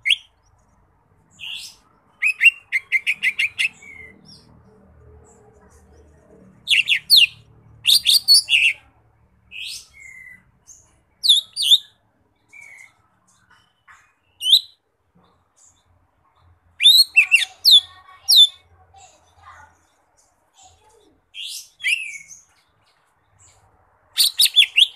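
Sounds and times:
bird singing whistled notes: 14.3s - 14.8s, 16.8s - 18.5s, 21.4s - 22.4s, 24.2s - 24.9s.

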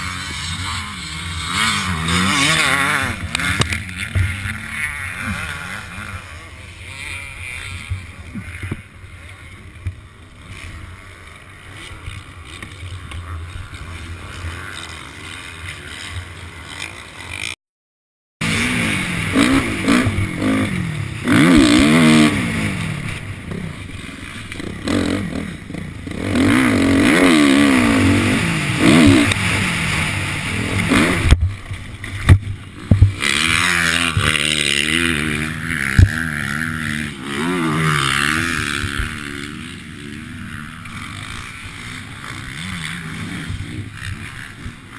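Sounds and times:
motocross bike engine revving: 0.0s - 17.6s, 18.4s - 44.9s.

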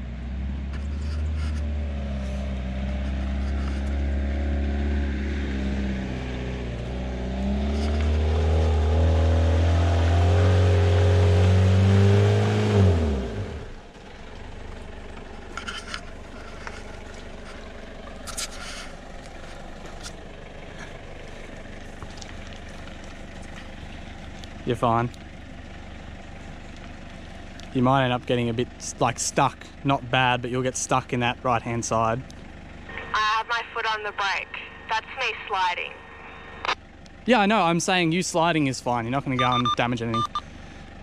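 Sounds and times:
low hum: 0.0s - 29.8s, 31.6s - 37.7s
engine revving hard: 3.1s - 13.8s.

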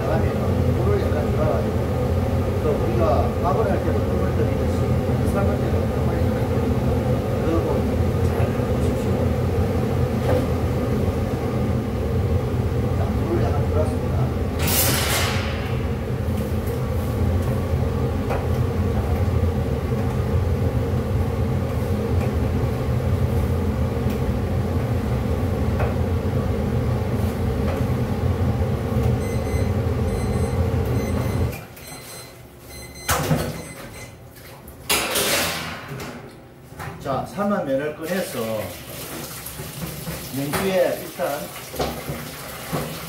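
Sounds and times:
loud low machinery rumble: 0.0s - 31.4s.

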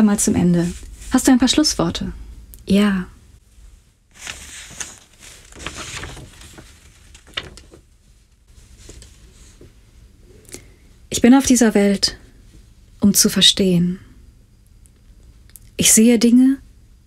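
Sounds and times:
low room hum: 0.0s - 17.0s
paper rustling: 4.1s - 9.7s.

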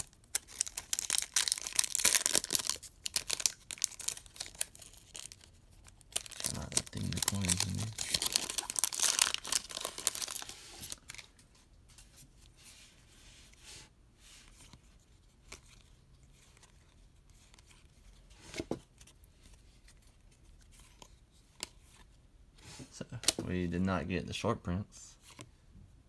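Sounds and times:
foil wrapper tearing and crinkling: 0.0s - 11.2s
cards rustling and clicking: 0.0s - 12.1s.

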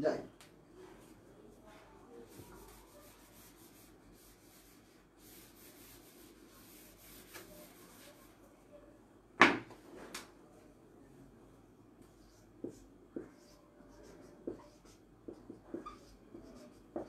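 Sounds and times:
eraser rubbing on whiteboard: 2.3s - 8.3s, 12.2s - 17.0s.

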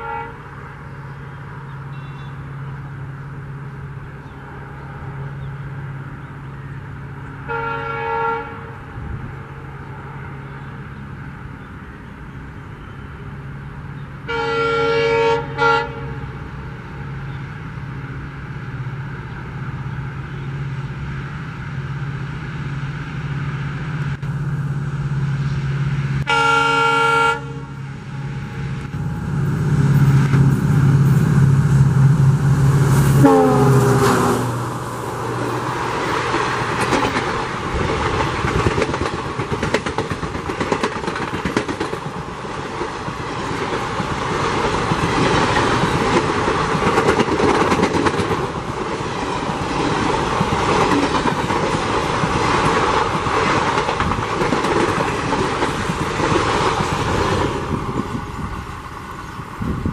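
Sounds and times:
locomotive horn: 0.0s - 0.6s, 7.4s - 8.8s, 14.2s - 16.3s, 26.2s - 27.8s, 33.0s - 34.6s
diesel locomotive engine drone: 0.0s - 59.9s
train wheels clattering over rail joints: 36.1s - 58.1s.

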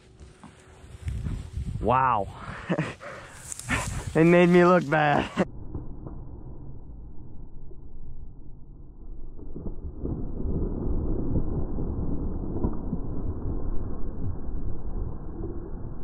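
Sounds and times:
brushing through dry grass: 0.0s - 1.9s, 2.7s - 5.3s
wind on microphone: 0.8s - 2.6s.

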